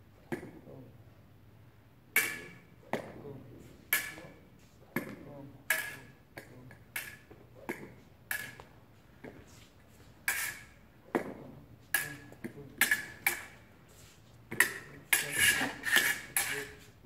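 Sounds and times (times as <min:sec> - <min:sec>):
fencing blades clashing: 0:02.1 - 0:03.2, 0:03.8 - 0:09.4, 0:10.0 - 0:13.8, 0:14.5 - 0:17.0.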